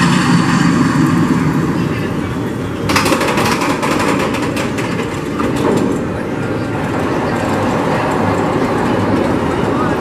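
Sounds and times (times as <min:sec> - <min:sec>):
roller coaster low rumbling: 0:00.0 - 0:10.0
lift track clacking clicks: 0:02.8 - 0:10.0.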